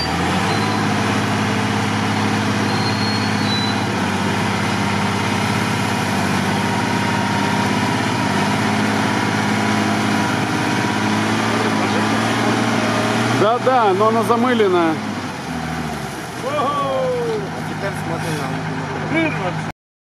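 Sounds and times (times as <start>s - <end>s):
diesel engine running: 0.0s - 19.7s.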